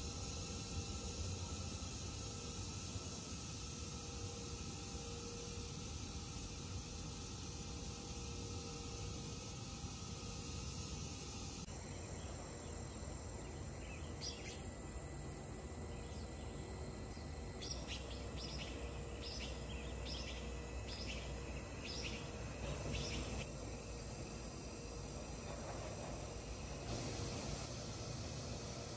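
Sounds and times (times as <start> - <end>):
outdoor background noise: 0.0 - 28.9
small bird chirping: 11.9 - 14.7, 15.8 - 23.4.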